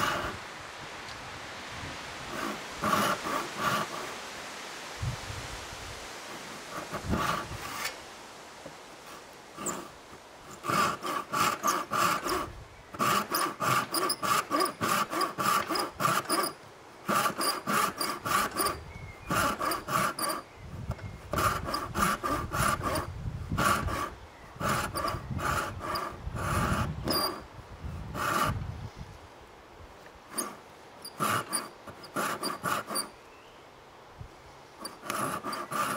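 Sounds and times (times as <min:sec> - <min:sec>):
handsaw rasping through wood: 0:00.0 - 0:00.4, 0:02.3 - 0:04.2, 0:06.7 - 0:08.0, 0:09.1 - 0:20.5, 0:21.3 - 0:28.6, 0:30.3 - 0:33.1, 0:34.8 - 0:35.9.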